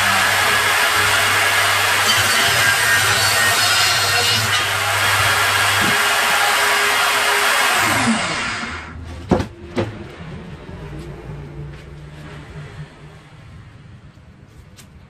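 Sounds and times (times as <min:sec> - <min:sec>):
circular saw cutting wood: 0:00.0 - 0:09.0.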